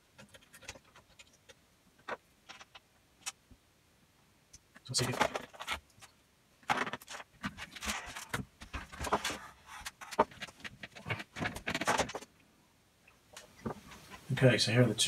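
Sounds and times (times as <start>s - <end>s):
clicks knocks and rustles of tools: 0.0s - 3.4s, 4.5s - 12.3s.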